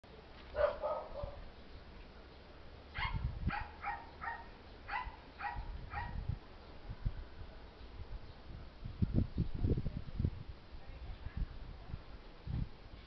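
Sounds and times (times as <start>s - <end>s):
dog barking: 0.5s - 1.4s, 3.0s - 6.2s.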